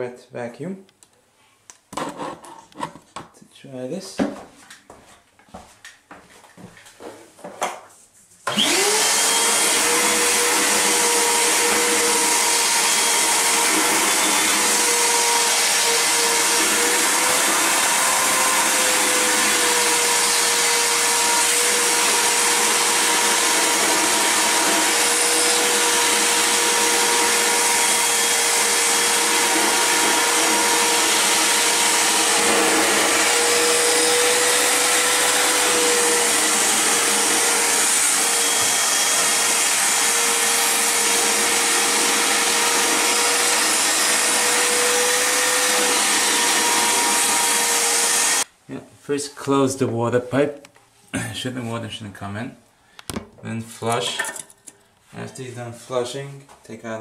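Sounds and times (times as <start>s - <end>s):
shop vacuum whining: 8.4s - 48.5s.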